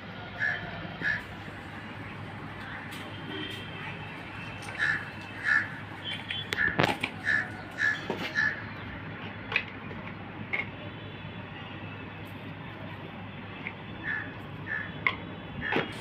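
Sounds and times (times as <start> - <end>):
crow cawing: 0.4 - 1.3, 4.8 - 5.8, 6.6 - 8.6, 14.1 - 14.9.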